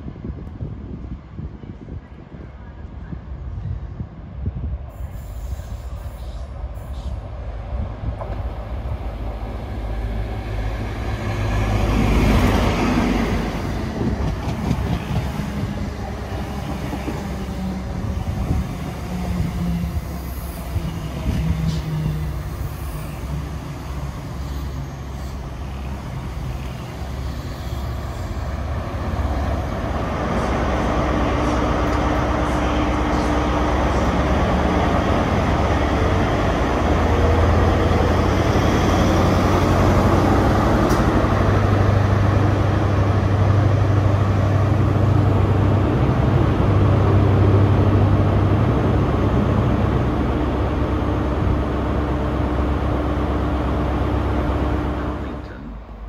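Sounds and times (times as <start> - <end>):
train diesel engine: 0.0 - 56.0
coaches rumbling on rails: 1.2 - 56.0
train brakes: 4.9 - 7.3, 20.3 - 23.6.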